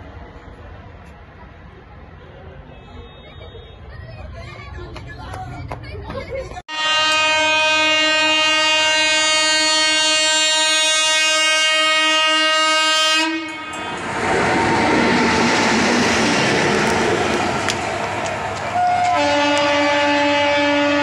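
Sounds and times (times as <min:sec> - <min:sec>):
locomotive horn blast: 0:06.7 - 0:14.4, 0:15.0 - 0:21.0
train wheels on rails: 0:13.4 - 0:21.0.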